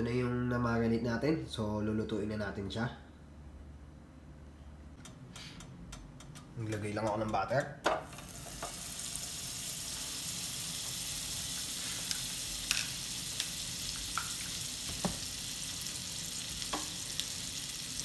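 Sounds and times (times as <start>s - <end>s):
butter sizzling in a frying pan: 8.1s - 18.0s.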